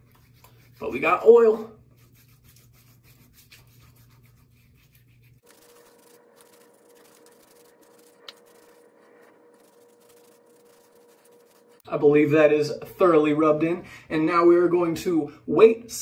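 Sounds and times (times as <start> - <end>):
oiled hands rubbing skin: 0.0 - 1.2, 1.8 - 11.8.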